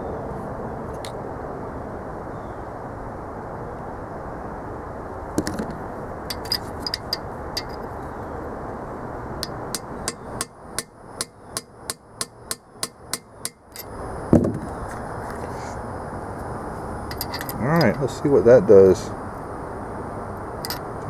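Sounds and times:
hammer striking steel rod: 0:09.4 - 0:13.9.

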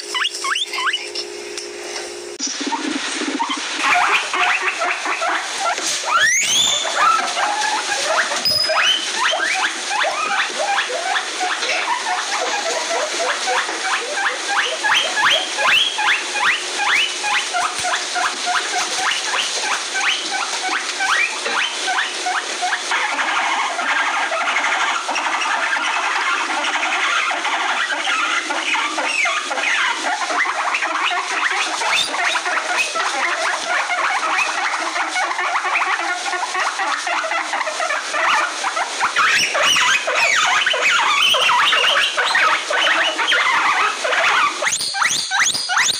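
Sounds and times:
guinea pigs squeaking: 0:00.0 - 0:01.3, 0:02.4 - 0:45.9.

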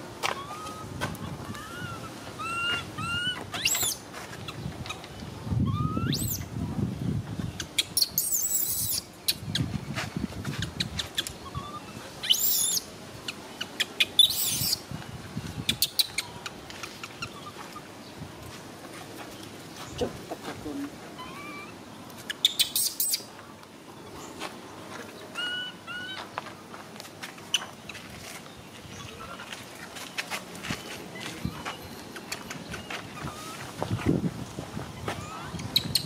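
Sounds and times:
infant monkey crying: 0:00.3 - 0:04.0, 0:05.7 - 0:06.4, 0:11.4 - 0:12.8, 0:21.2 - 0:21.8, 0:25.4 - 0:26.2.

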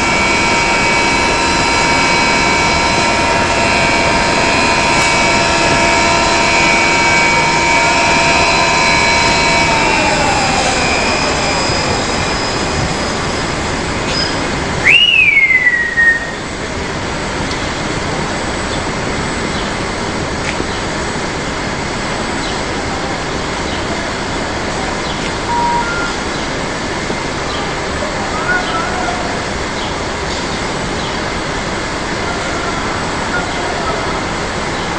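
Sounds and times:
loud machinery squeal: 0:00.0 - 0:16.6, 0:23.6 - 0:34.9
motor whine: 0:00.0 - 0:28.0
crane machinery running: 0:00.0 - 0:34.9.

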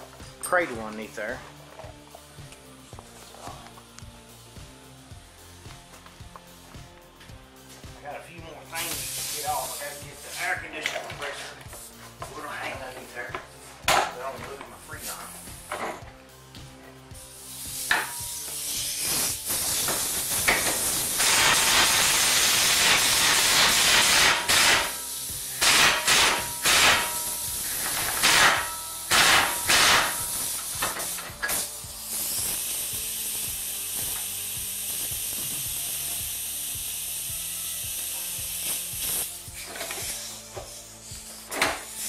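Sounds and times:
steady high air hiss: 0:06.5 - 0:13.8, 0:17.1 - 0:42.0
pneumatic wrench: 0:17.4 - 0:42.0.

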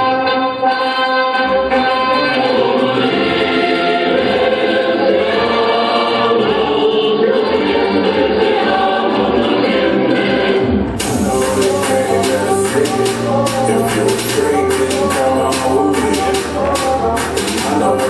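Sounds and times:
choir singing slow anthem: 0:01.7 - 0:18.0
percussive music track: 0:10.6 - 0:18.0.

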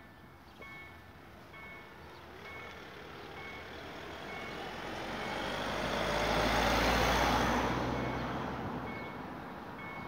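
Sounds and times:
vehicle passing with rumble: 0:02.3 - 0:09.5
level crossing signal beeping: 0:08.9 - 0:09.2, 0:09.8 - 0:10.0.

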